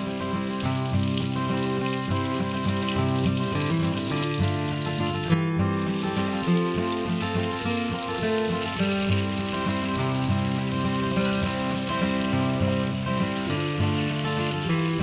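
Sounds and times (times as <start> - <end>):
background music: 0.0 - 15.0
fish sizzling in hot oil: 0.0 - 15.0.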